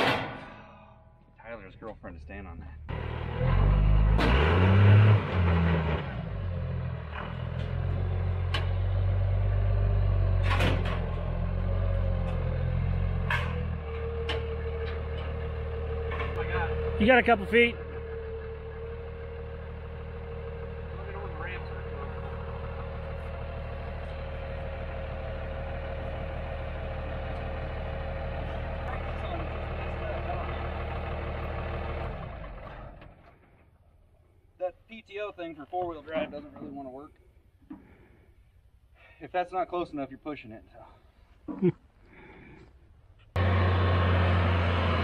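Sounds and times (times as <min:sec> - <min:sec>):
sharp clunks on steel ramps: 0:00.0 - 0:00.6, 0:10.3 - 0:11.4
pickup truck engine running: 0:14.2 - 0:33.0.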